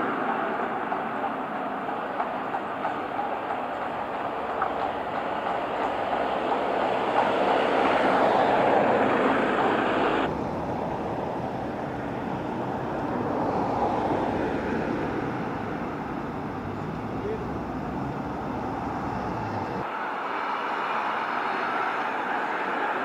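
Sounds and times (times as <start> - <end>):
horse-drawn carriage rolling past: 0.0 - 19.9
soft steady rush: 0.0 - 23.0
street traffic: 0.0 - 23.0.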